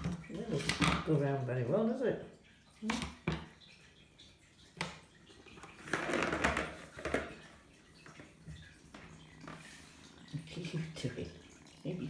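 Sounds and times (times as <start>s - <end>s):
ball rolling through plastic track: 5.6s - 7.5s.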